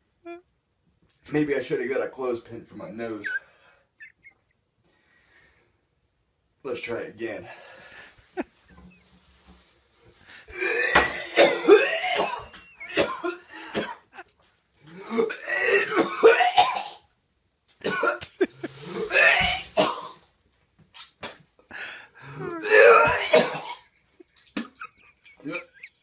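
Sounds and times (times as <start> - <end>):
man retching and gagging: 10.5 - 17.1, 17.8 - 20.3, 20.9 - 21.6, 22.2 - 26.0.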